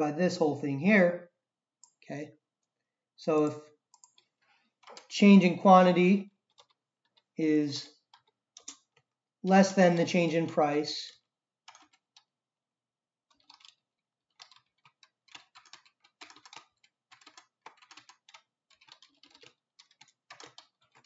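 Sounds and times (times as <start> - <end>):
typing on a computer keyboard: 3.6 - 5.1, 6.4 - 9.1, 11.1 - 12.3, 13.3 - 21.0.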